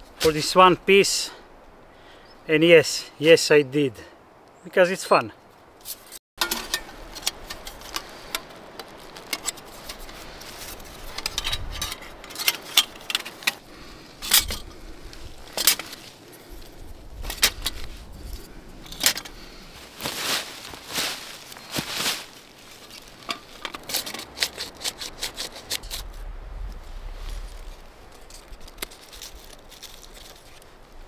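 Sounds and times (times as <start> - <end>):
clicks of wood and tools: 5.8 - 13.6, 15.5 - 16.1, 17.2 - 19.4, 23.2 - 26.0.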